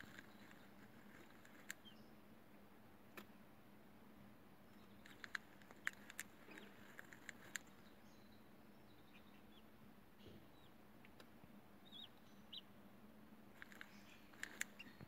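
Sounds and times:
chick pecking at eggshell: 0:00.0 - 0:02.0, 0:04.8 - 0:07.9, 0:13.5 - 0:15.0
faint chick peeps: 0:00.0 - 0:02.2, 0:04.7 - 0:12.8, 0:13.6 - 0:15.0.

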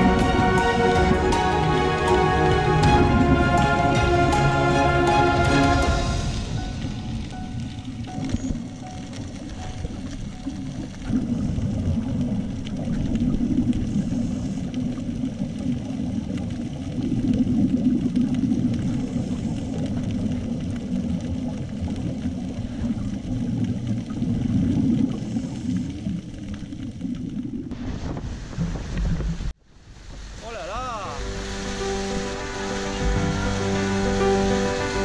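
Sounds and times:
sea noise: 0:00.0 - 0:35.0
wind: 0:00.0 - 0:35.0
muffled underwater rumble: 0:06.0 - 0:30.4.

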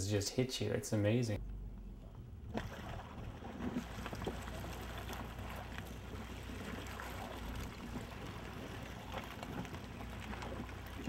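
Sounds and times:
boat engine humming: 0:01.2 - 0:11.0
water washing along hull: 0:02.4 - 0:11.0.

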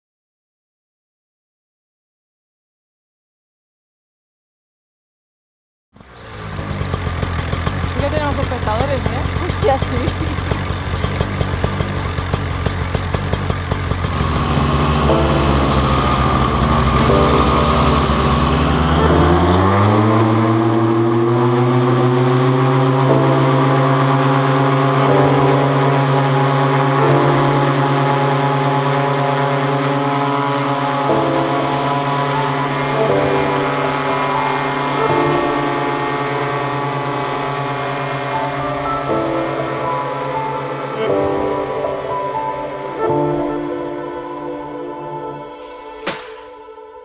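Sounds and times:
paramotor engine and propeller revving: 0:06.0 - 0:46.8.

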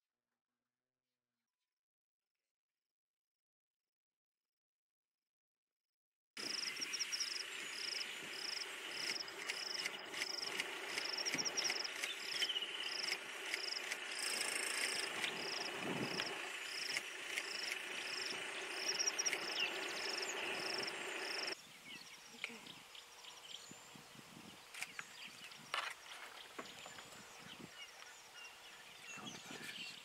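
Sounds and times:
high-pitched insect drone: 0:06.4 - 0:21.6
buzzy insect chirp: 0:06.4 - 0:22.4.

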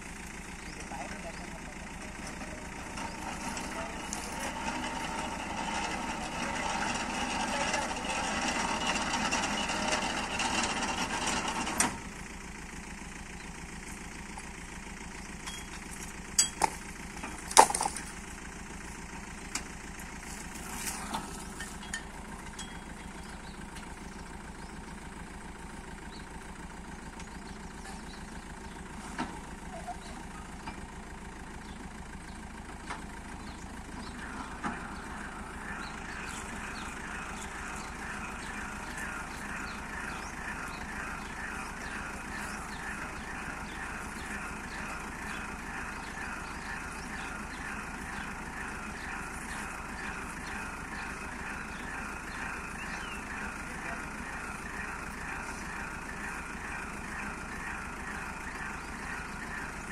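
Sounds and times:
drilling rig engine running: 0:00.0 - 0:59.9.

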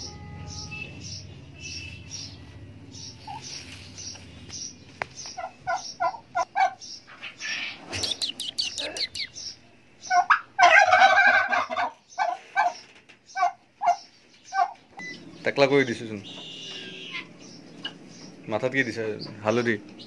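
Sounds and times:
short repeated turkey calls: 0:05.4 - 0:09.4
turkey gobbling: 0:05.4 - 0:09.4, 0:10.1 - 0:14.8, 0:16.3 - 0:18.0.

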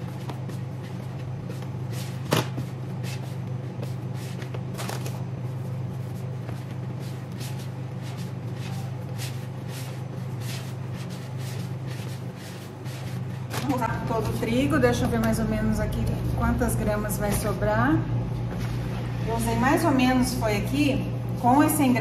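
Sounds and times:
dough squishing against plastic tub: 0:00.0 - 0:15.7
low steady hum: 0:00.0 - 0:22.0.

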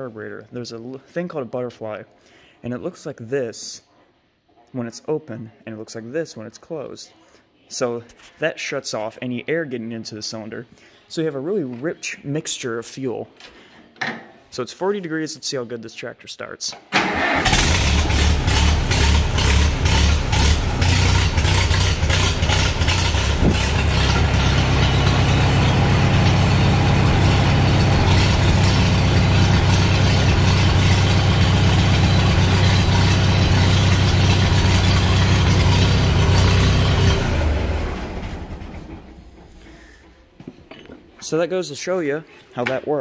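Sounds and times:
tractor engine running: 0:17.0 - 0:40.1.

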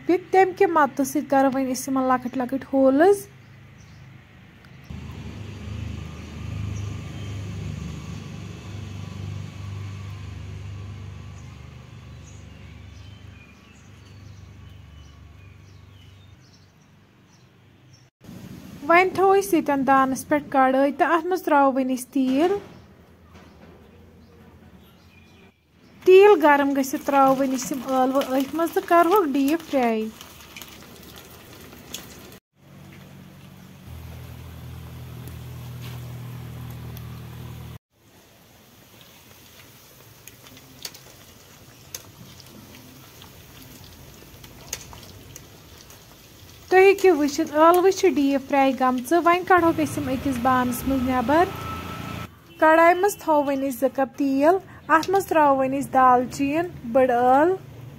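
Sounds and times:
potatoes sizzling in hot oil: 0:26.3 - 0:32.4, 0:34.0 - 0:52.2
low mechanical hum: 0:32.6 - 0:37.8.

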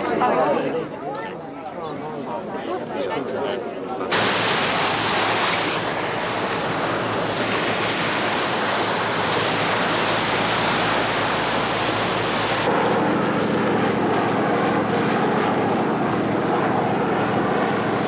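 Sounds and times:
helicopter rotor chopping: 0:04.0 - 0:18.0
steady rushing noise: 0:04.1 - 0:12.8.

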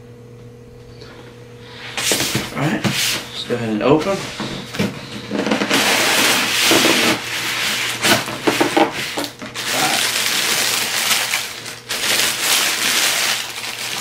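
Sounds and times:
wrapping paper rustling: 0:05.3 - 0:14.0.

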